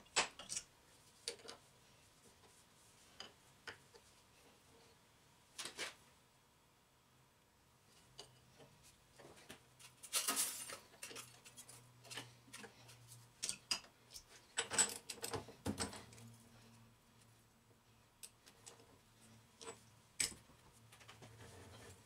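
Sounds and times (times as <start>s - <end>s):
metal tools clicking and clinking: 10.0s - 12.7s.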